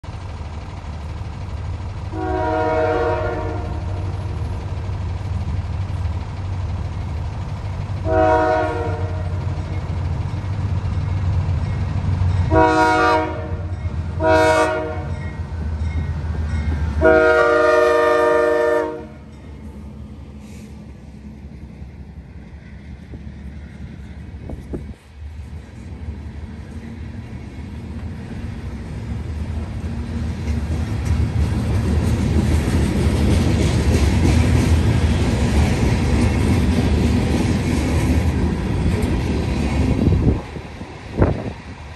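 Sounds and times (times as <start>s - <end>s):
freight cars rolling: 0.0s - 41.9s
locomotive engine rumble: 0.0s - 41.9s
locomotive air horn blasts: 2.1s - 4.1s, 8.0s - 9.5s, 12.5s - 15.2s, 17.0s - 19.2s.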